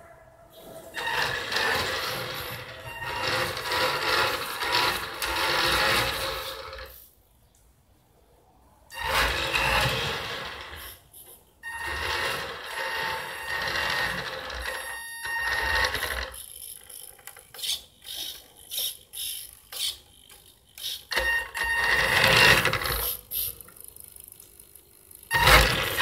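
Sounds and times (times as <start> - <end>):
model car motor whining: 0.9 - 6.9, 11.7 - 23.4, 25.1 - 26.0.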